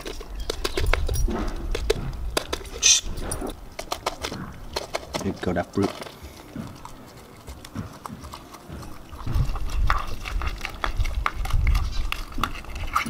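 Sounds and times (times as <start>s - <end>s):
dogs lapping and smacking: 3.8s - 13.0s.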